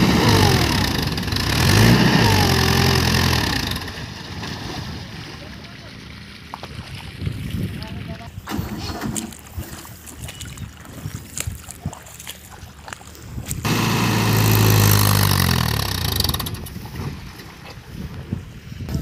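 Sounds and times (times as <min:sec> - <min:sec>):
tractor diesel engine straining: 0:00.0 - 0:05.2, 0:08.5 - 0:09.6, 0:13.6 - 0:17.8.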